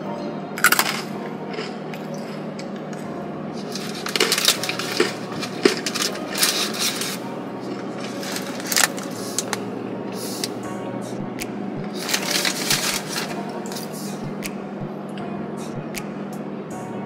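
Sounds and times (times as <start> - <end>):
crunchy snack chewing: 0.6 - 2.4, 3.6 - 9.6.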